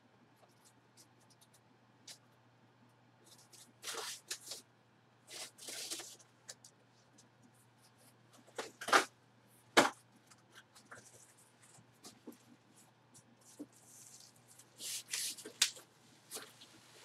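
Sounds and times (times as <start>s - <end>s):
packaging rustling and scraping: 5.3s - 6.2s.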